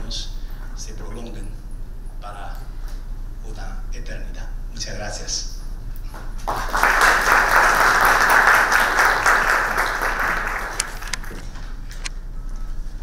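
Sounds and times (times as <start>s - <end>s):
audience applauding: 6.4s - 11.4s.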